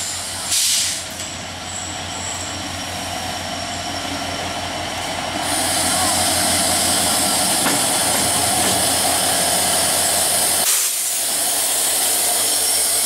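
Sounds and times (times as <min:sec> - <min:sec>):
loud steady hiss: 0:08.6 - 0:13.0.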